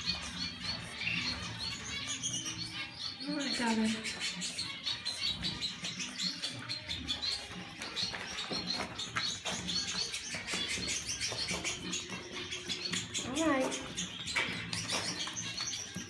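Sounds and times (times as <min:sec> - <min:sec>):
pet birds chirping: 0:00.0 - 0:16.0.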